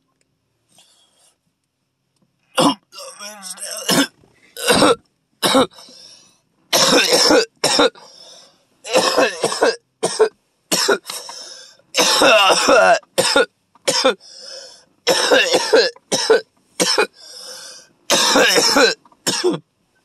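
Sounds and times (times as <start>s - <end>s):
man coughing hard: 2.6s - 5.8s, 6.7s - 8.0s, 8.9s - 11.1s, 12.0s - 14.2s, 15.1s - 17.2s, 18.1s - 19.6s
wheezing breaths: 5.7s - 6.5s, 8.0s - 8.7s, 11.1s - 11.9s, 14.2s - 14.9s, 17.2s - 18.0s.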